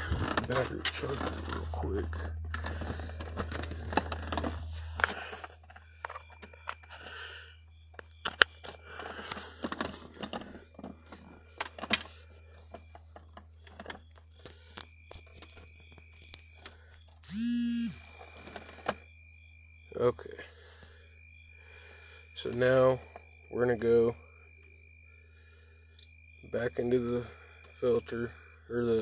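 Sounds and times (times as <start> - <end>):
handling rustling and clicks: 0.0 - 7.1, 7.9 - 17.2
steady low hum: 0.0 - 15.2, 15.9 - 19.9
short buzz: 17.2 - 18.2.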